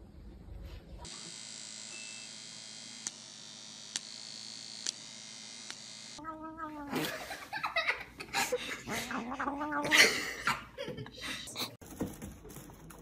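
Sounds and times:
electrical buzzing hum: 1.0s - 6.2s.

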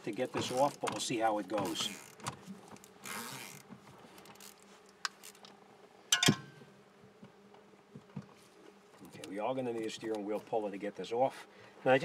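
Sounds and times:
ratchet wrench zipping rattle: 1.6s - 2.2s, 3.0s - 5.4s.

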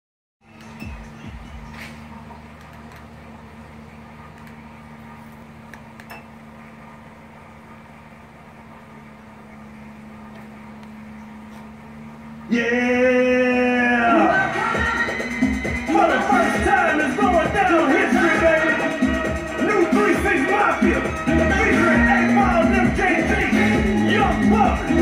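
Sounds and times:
loud music: 0.4s - 2.6s, 12.3s - 25.0s
projector screen motor hum: 0.4s - 25.0s.

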